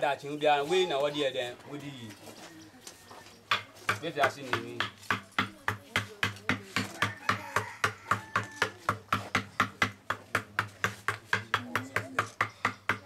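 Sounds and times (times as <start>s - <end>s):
wooden mallet striking chisel: 3.4s - 13.0s.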